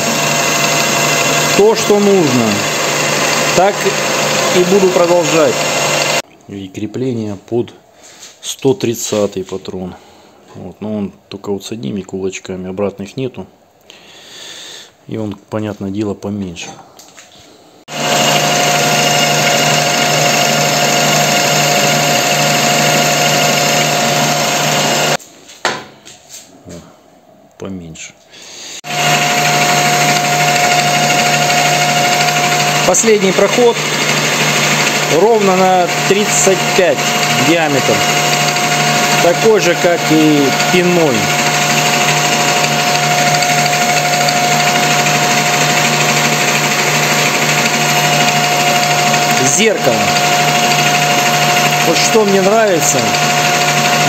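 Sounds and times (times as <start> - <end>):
metal lathe hum and whine: 0.0 - 6.2, 17.9 - 25.2, 28.8 - 54.0
tool cutting steel: 0.0 - 6.2, 17.9 - 25.2, 28.8 - 54.0.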